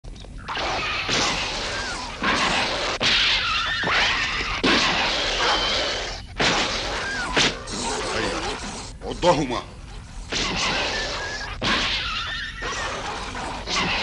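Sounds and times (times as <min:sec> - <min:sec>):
cartoon dogs snarling and yelping: 0:00.5 - 0:14.0.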